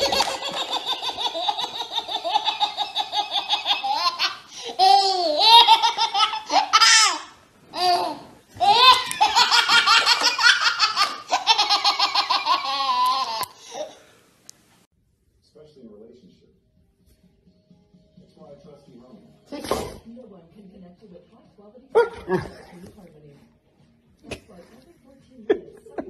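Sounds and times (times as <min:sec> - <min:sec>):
baby laughing: 0:00.0 - 0:14.0.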